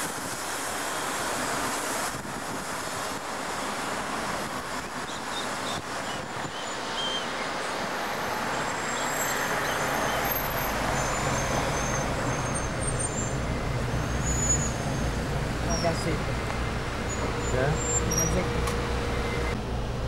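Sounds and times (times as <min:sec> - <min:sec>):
cars passing: 0:00.0 - 0:20.0
heavy vehicle engine rumble: 0:09.5 - 0:20.0.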